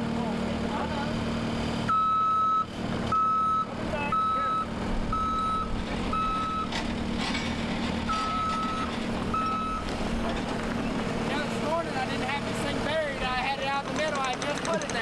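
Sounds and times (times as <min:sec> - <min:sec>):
loader engine running: 0:00.0 - 0:15.0
backup alarm beeping: 0:01.9 - 0:06.8, 0:08.1 - 0:09.9.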